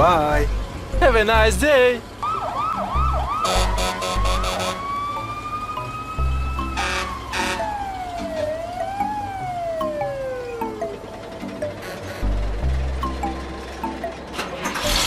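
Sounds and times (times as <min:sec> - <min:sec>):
siren wailing: 0:02.2 - 0:11.3.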